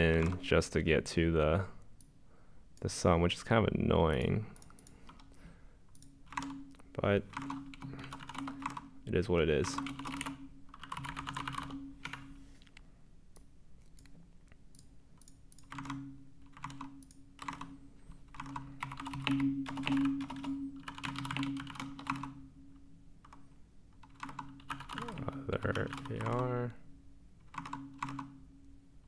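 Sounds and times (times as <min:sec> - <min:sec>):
computer keyboard typing: 0:00.0 - 0:00.5, 0:04.6 - 0:08.9, 0:09.6 - 0:12.3, 0:14.7 - 0:22.4, 0:23.2 - 0:23.4, 0:24.0 - 0:26.5, 0:27.4 - 0:28.4.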